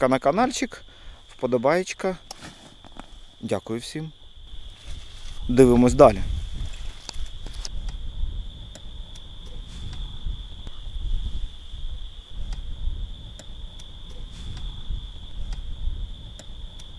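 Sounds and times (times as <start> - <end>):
crickets trilling: 0.0 - 16.9
low uneven rumble: 4.1 - 16.8.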